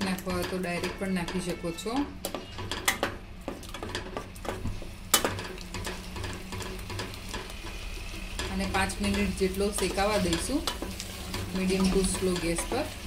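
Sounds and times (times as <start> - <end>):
spatula scraping metal pot: 0.1 - 4.5.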